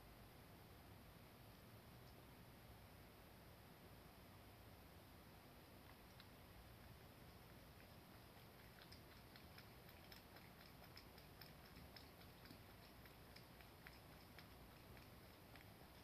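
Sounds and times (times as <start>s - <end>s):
cat lapping water: 5.7s - 16.0s.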